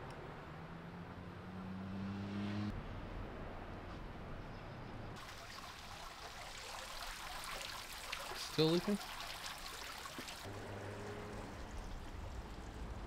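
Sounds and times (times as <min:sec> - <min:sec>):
water trickling through gates: 0:05.2 - 0:13.0
engine humming: 0:10.4 - 0:13.0.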